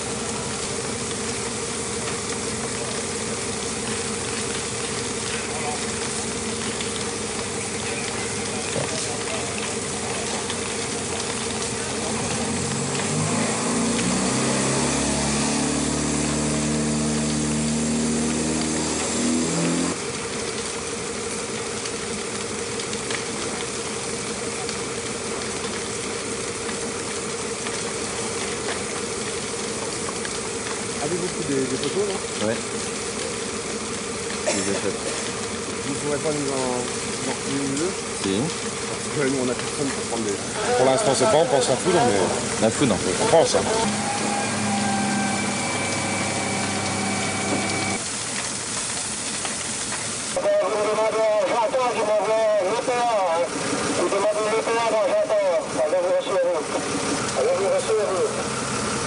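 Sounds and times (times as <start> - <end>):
pitched drone: 0.0 - 20.1, 41.4 - 48.1
steady hum: 0.0 - 40.8, 41.6 - 48.1
engine drone: 0.0 - 59.0
faint fire crackles: 0.0 - 59.0
fire rushing hiss: 0.0 - 59.0.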